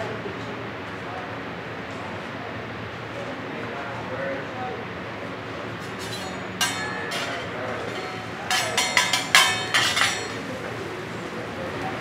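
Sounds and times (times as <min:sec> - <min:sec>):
metal spatula clinking on griddle: 0:06.0 - 0:10.8.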